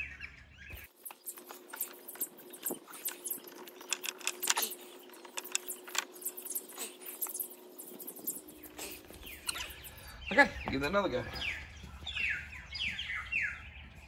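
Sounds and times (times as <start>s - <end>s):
bulb holders clicking and rattling: 1.4s - 7.4s.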